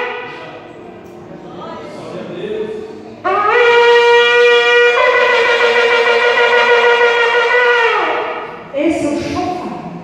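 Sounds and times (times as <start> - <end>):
shofar long held note: 0.0 - 0.6, 3.2 - 8.5.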